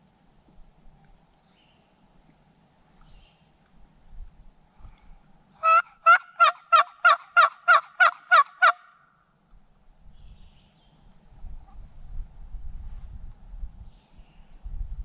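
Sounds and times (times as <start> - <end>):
turkey box call yelps: 5.6 - 9.0.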